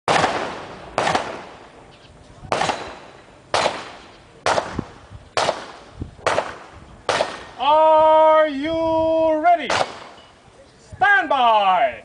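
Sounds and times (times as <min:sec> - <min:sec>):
gunshots with echo: 0:00.1 - 0:01.7, 0:02.5 - 0:07.6, 0:09.7 - 0:10.2.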